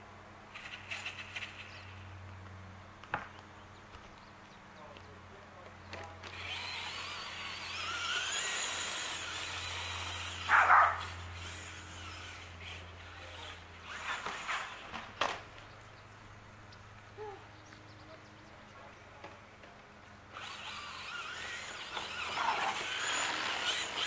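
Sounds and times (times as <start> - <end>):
electric motor whine of rc car: 0.5 - 2.0, 6.2 - 15.5, 20.3 - 24.0.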